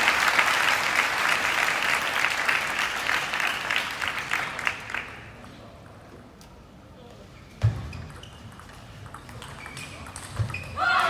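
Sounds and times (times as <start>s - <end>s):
audience clapping: 0.0s - 5.4s.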